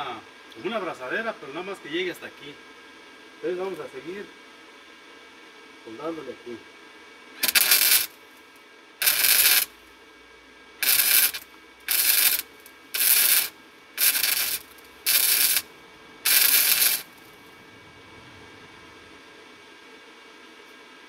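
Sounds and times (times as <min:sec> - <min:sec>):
welder arc crackling: 0:07.4 - 0:10.1, 0:10.7 - 0:17.7.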